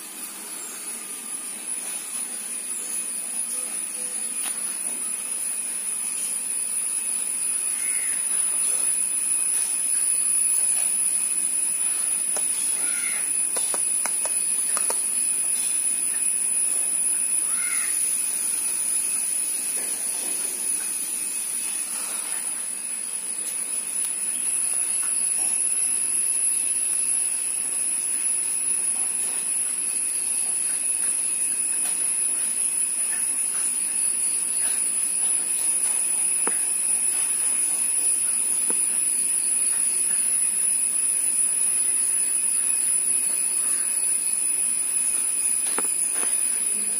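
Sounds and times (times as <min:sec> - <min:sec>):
high-pitched insect drone: 0:00.0 - 0:46.9.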